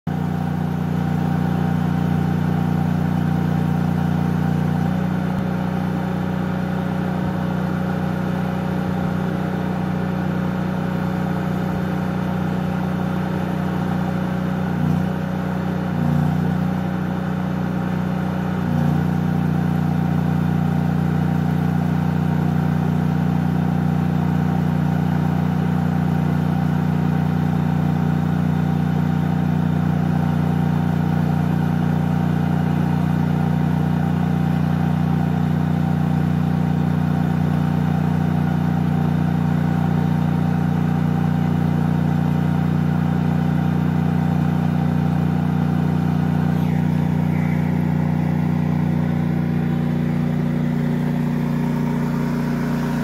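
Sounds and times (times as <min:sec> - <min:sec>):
engine idling inside vehicle: 0:00.1 - 0:53.0
faint high tone: 0:46.5 - 0:49.8.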